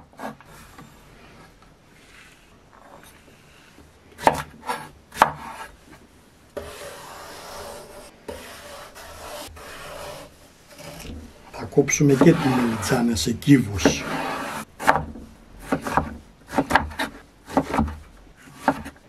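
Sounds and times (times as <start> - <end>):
vegetable peeler scraping eggplant: 6.6 - 15.0.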